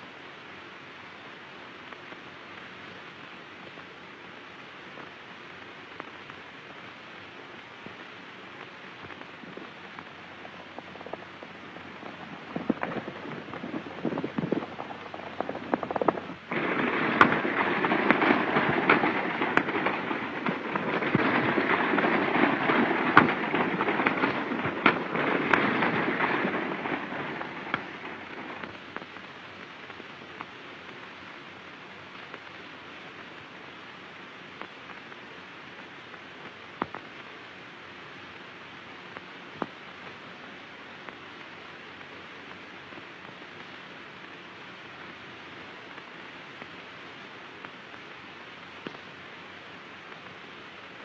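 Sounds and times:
steady film hiss: 0:00.0 - 0:51.0
dense clatter with sharp cracks: 0:09.0 - 0:29.1.

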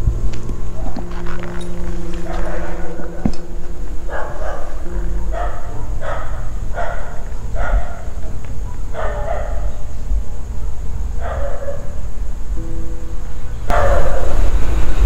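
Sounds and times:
low steady rumble: 0:00.0 - 0:15.0
dog barking: 0:01.7 - 0:03.5, 0:04.1 - 0:09.9, 0:11.2 - 0:12.0, 0:13.7 - 0:14.4.

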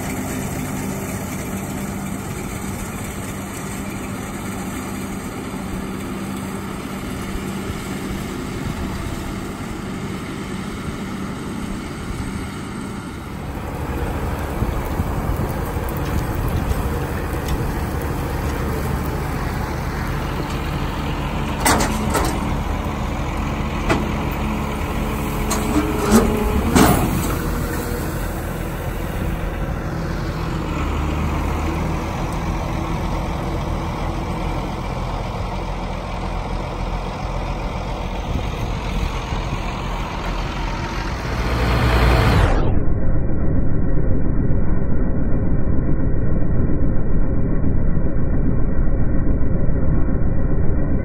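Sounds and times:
baler working: 0:00.0 - 0:41.8
tractor running: 0:00.0 - 0:42.8
machinery clanking: 0:13.2 - 0:41.8.

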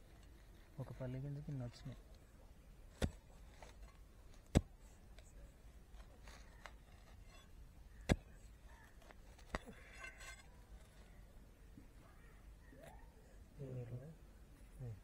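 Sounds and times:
digging bar striking stony soil: 0:02.8 - 0:10.8.

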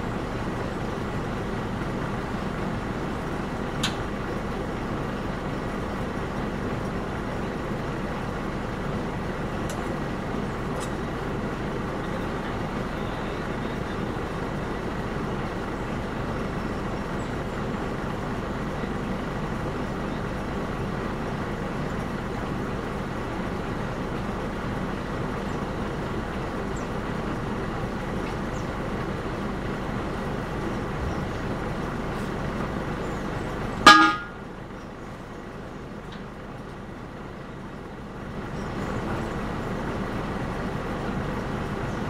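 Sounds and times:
heavy vehicle engine running: 0:00.0 - 0:42.0
vehicle horn toot: 0:33.8 - 0:34.4.

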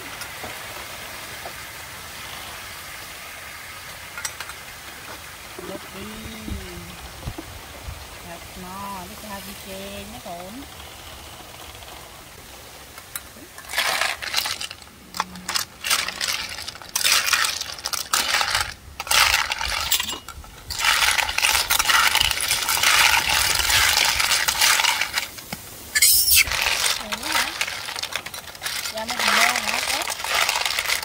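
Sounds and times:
snail shells rattling in a metal wok: 0:13.0 - 0:31.0.

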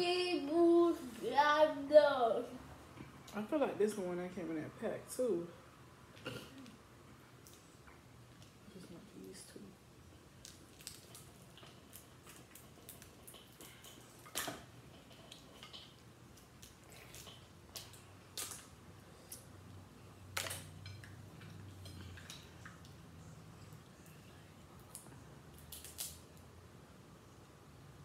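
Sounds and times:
crab shells cracking: 0:10.4 - 0:18.7, 0:24.9 - 0:26.2
wet squishes: 0:10.4 - 0:19.4, 0:24.8 - 0:26.4.

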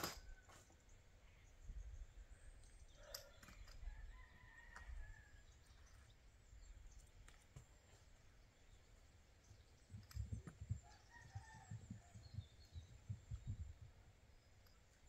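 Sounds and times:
faint rooster crowing: 0:00.0 - 0:00.8, 0:03.0 - 0:05.6, 0:10.6 - 0:12.8.

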